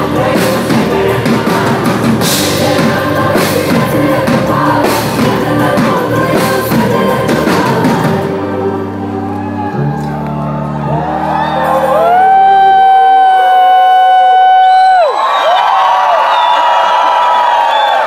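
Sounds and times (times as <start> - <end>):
pop backing track with drums: 0.0 - 8.6
woman singing into microphone: 0.0 - 9.0.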